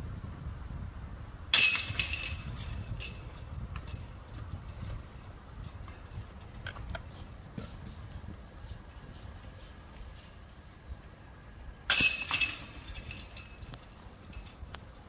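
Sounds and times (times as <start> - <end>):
disc rattling metal chains: 1.5 - 7.2, 11.9 - 15.0.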